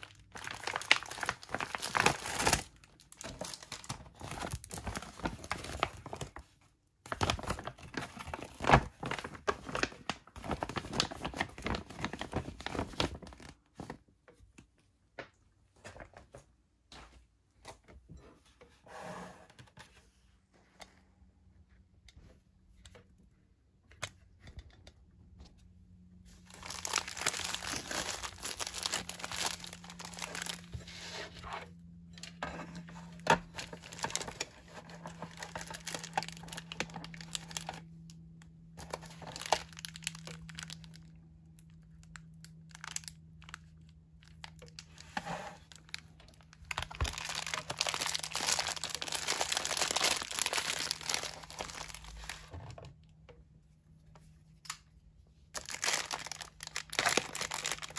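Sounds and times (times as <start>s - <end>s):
plastic wrap crinkling: 0.0s - 6.5s, 7.1s - 14.0s, 26.3s - 31.0s, 33.1s - 52.5s, 55.5s - 57.9s.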